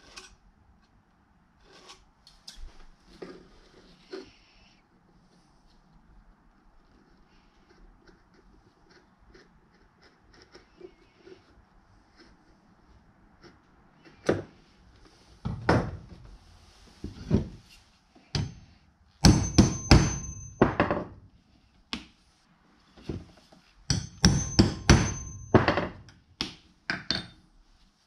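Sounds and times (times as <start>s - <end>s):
hammer striking hole punch: 19.2s - 20.9s, 23.9s - 27.3s.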